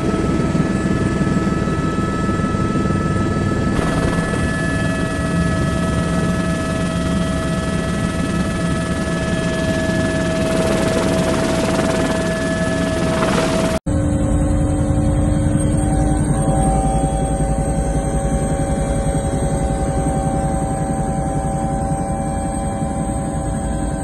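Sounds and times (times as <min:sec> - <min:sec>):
helicopter rotor and engine: 0:00.0 - 0:24.0
whining tones: 0:03.6 - 0:17.6.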